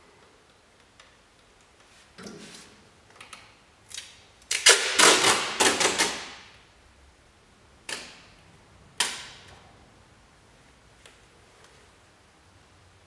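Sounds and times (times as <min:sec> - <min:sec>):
masking tape pulled off roll: 0:03.9 - 0:06.5
tape ripping: 0:03.9 - 0:06.5.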